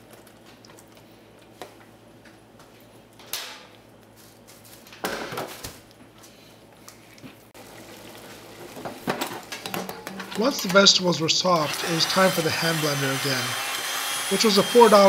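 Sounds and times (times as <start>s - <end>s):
cookware clunking and scraping: 9.0s - 10.8s.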